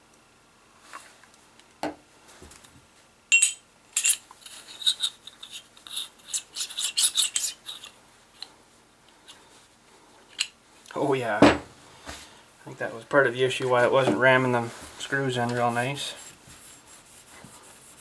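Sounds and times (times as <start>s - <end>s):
metallic clicks and scraping: 3.4s - 8.5s.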